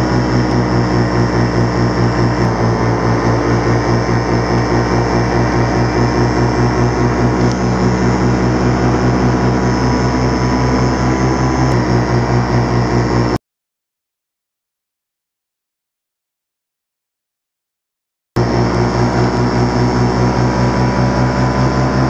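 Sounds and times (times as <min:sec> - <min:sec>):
two-stroke engine droning: 0:00.0 - 0:13.4, 0:18.4 - 0:22.0.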